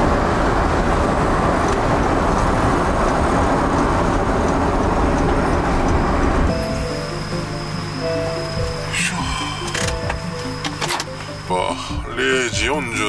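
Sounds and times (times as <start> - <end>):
road and tyre noise: 0.0 - 13.0.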